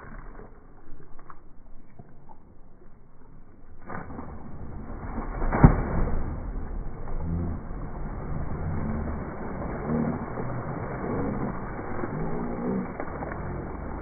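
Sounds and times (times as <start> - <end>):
water splashing and churning: 0.0 - 14.0
body splashing into water: 3.8 - 14.0.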